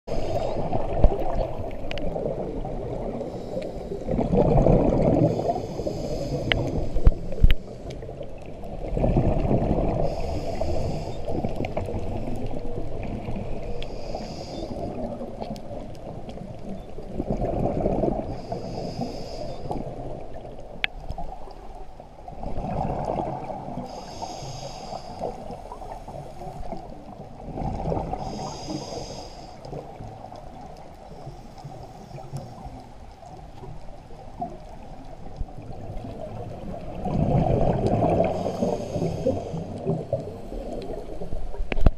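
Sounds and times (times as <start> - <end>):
regulator hiss on inhale: 0.1 - 2.0, 3.1 - 4.2, 5.1 - 8.2, 9.9 - 12.6, 13.5 - 15.4, 18.2 - 20.0, 23.8 - 26.9, 28.1 - 30.4, 31.0 - 33.0, 38.1 - 41.3
exhaled bubbles rushing: 0.2 - 3.4, 4.0 - 5.7, 6.6 - 13.7, 17.1 - 18.4, 22.3 - 23.9, 27.4 - 28.4, 35.5 - 41.9.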